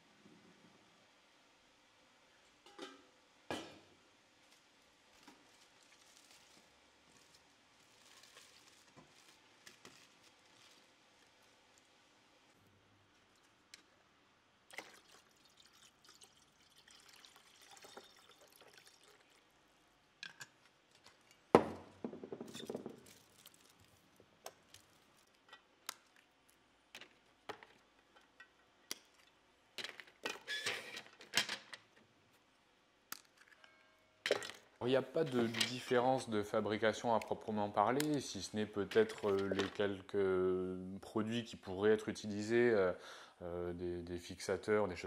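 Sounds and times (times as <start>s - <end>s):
aluminium foil crinkling: 4.4s - 11.9s, 22.6s - 26.6s.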